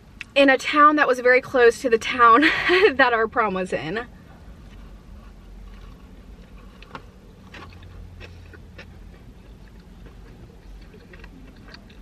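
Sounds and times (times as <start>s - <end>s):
close chewing with wet smacks: 5.7s - 12.0s.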